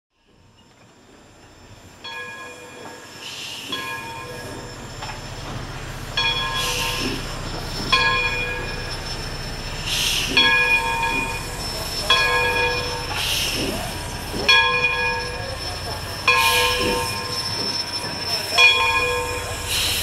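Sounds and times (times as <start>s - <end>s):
train rumble: 0.2s - 20.0s
steam hiss: 1.4s - 20.0s
ringing bell tone: 6.2s - 7.0s, 7.9s - 9.5s, 10.3s - 13.2s, 14.5s - 19.7s.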